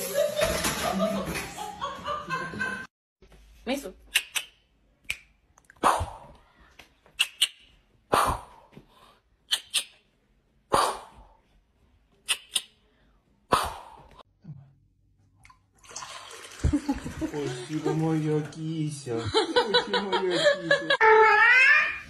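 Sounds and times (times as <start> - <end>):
finger snaps: 4.1 - 5.8, 6.8 - 7.6, 12.2 - 12.8
water trickling into a glass: 15.7 - 18.2.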